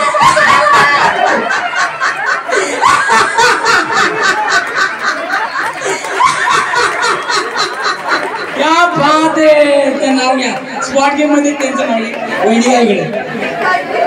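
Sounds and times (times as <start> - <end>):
woman laughing into microphone: 0.0 - 8.6.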